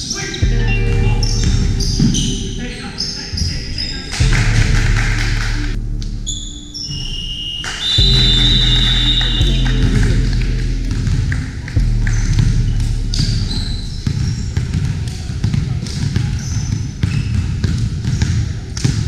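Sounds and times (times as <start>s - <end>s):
voices chatting: 0.0s - 16.7s
basketball bouncing on wooden floor: 13.2s - 19.0s.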